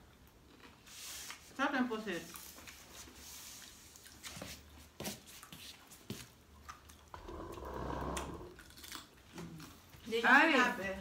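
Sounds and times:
crisp chewing: 6.6 - 10.1.

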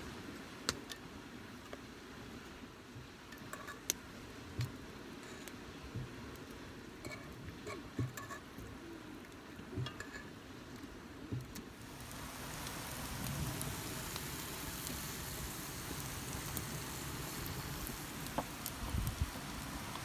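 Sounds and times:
bacon sizzling in a skillet: 11.8 - 20.0.

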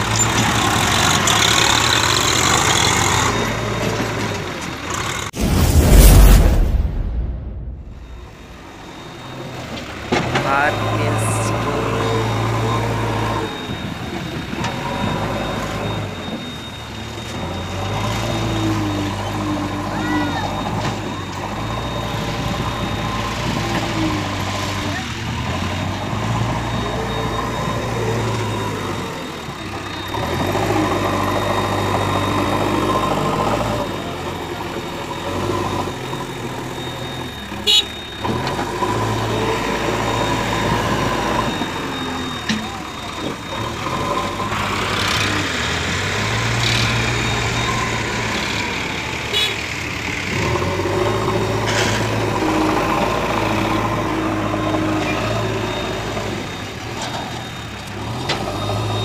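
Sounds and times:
tractor engines idling: 0.0 - 5.4, 8.3 - 59.0
diesel engine revving: 0.0 - 59.0.

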